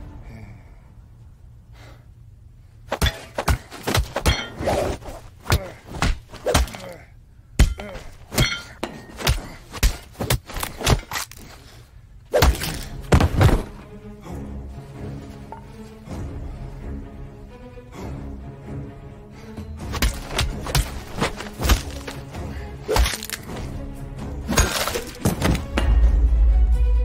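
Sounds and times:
low background music: 0.0s - 5.6s, 12.1s - 27.0s
punch and kick impact hits: 9.2s - 11.1s, 12.4s - 13.8s.

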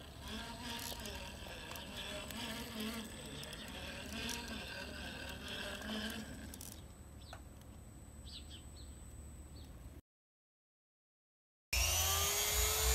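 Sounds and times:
electric motor whining: 0.0s - 6.9s, 11.8s - 12.9s.

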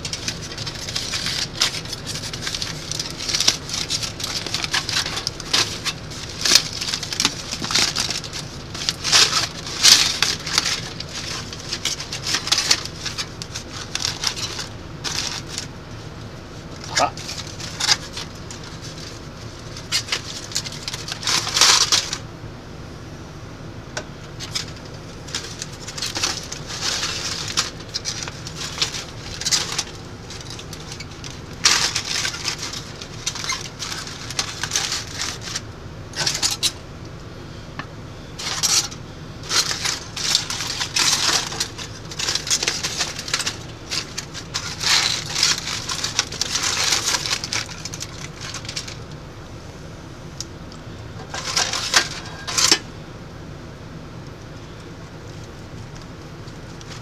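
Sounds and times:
aluminium foil crinkling: 0.0s - 22.3s, 24.2s - 36.8s, 38.3s - 49.2s, 50.7s - 52.9s, 54.2s - 57.0s.

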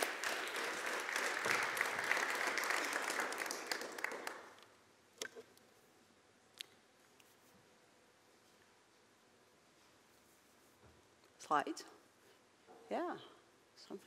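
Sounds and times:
audience applauding: 0.0s - 4.7s.

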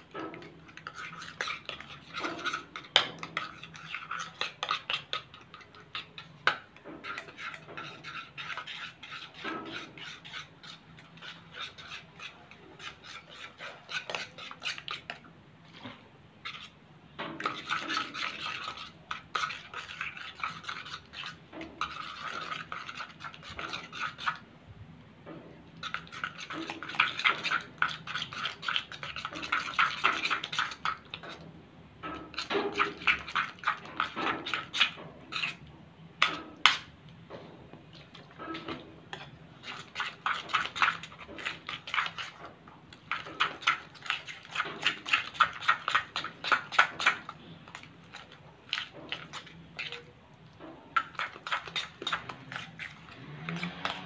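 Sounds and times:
metal spoon scraping a bowl: 0.0s - 24.4s, 25.8s - 37.0s, 37.9s - 54.0s.

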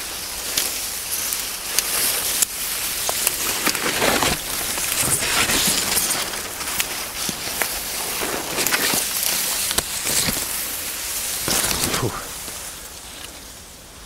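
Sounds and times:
dry reeds rustling and crackling: 0.0s - 14.0s
sharp snaps and ticks: 1.3s - 10.7s.

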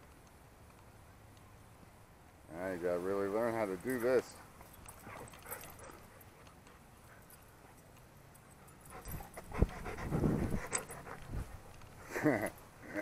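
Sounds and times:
dog sniffing and breathing: 4.4s - 12.2s.

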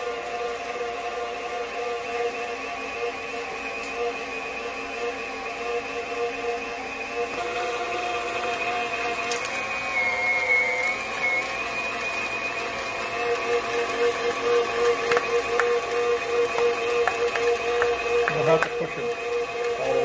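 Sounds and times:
mixer motor whine: 0.0s - 20.0s.

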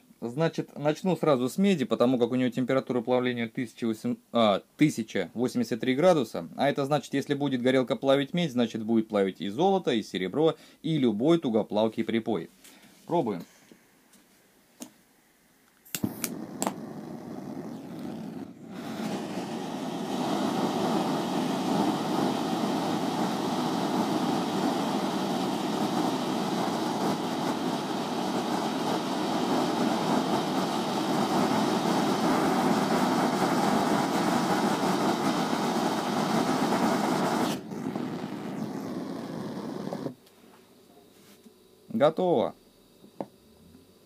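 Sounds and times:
torch flame hissing: 15.8s - 40.3s.

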